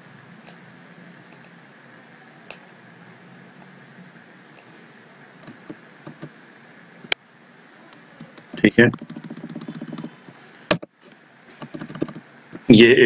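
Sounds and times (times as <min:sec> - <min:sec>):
faint hiss and hum: 0:00.0 - 0:13.0
mouse and keyboard clicks: 0:05.4 - 0:06.3, 0:08.2 - 0:10.1, 0:11.6 - 0:12.2.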